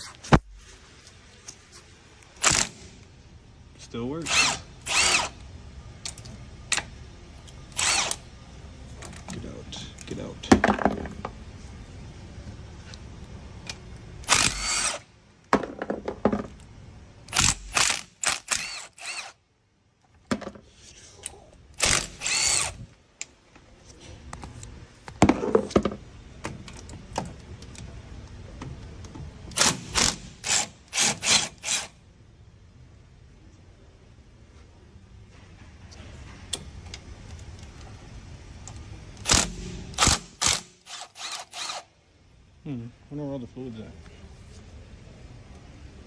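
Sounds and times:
impact wrench bursts: 0:02.4 - 0:03.0, 0:04.2 - 0:05.4, 0:07.7 - 0:08.2, 0:14.2 - 0:15.1, 0:17.3 - 0:19.4, 0:21.8 - 0:22.9, 0:29.5 - 0:32.0, 0:39.2 - 0:41.9.

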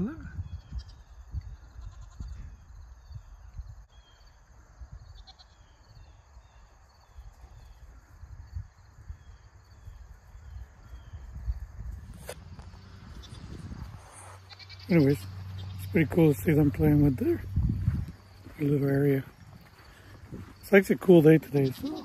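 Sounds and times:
wind on microphone: 0:00.0 - 0:03.9, 0:07.4 - 0:14.4, 0:16.6 - 0:18.6
goats bleating: 0:01.7 - 0:02.4, 0:14.4 - 0:16.0, 0:21.4 - 0:22.0.

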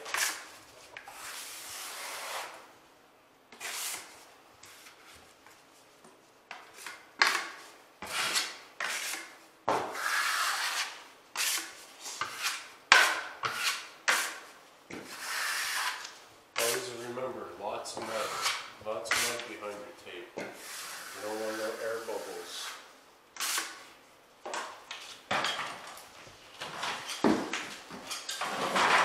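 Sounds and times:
taping knife scraping compound: 0:00.0 - 0:02.7, 0:03.5 - 0:05.2, 0:06.5 - 0:17.0, 0:17.9 - 0:19.6, 0:20.4 - 0:23.9.

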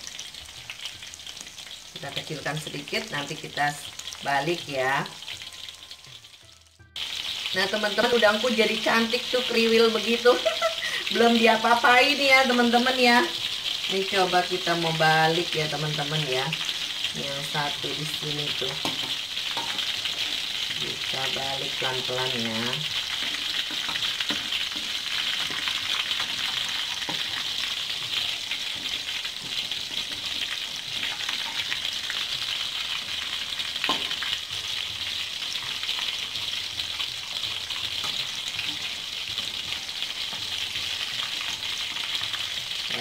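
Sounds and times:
shrimp sizzling in hot oil: 0:00.0 - 0:43.0.

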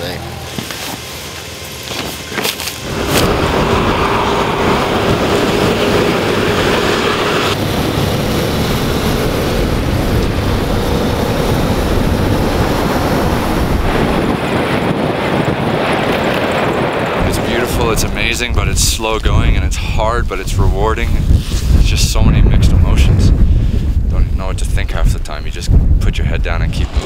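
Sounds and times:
vehicle on gravel track: 0:00.2 - 0:23.2, 0:26.3 - 0:27.0
steady drone: 0:01.4 - 0:15.0, 0:17.0 - 0:20.9
wind buffeting microphone: 0:02.8 - 0:27.0.

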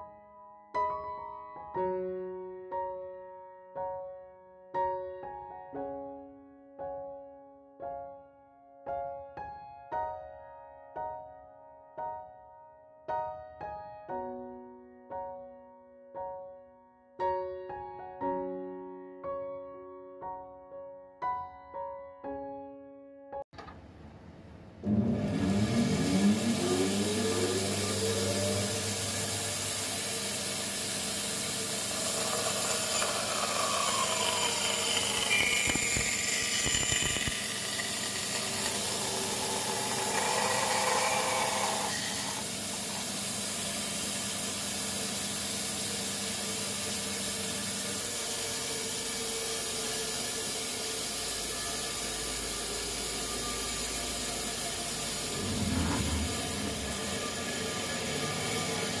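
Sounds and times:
power tool hissing on wood: 0:26.0 - 0:59.0.

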